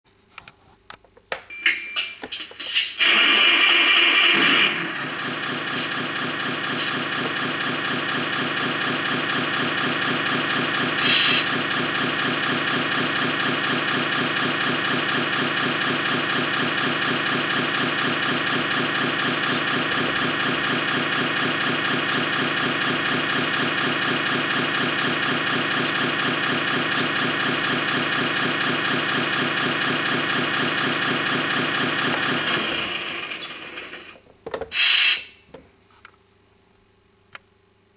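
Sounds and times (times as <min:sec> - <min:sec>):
diesel idle from small speaker: 0:03.0 - 0:34.0
brief hiss: 0:34.8 - 0:35.4.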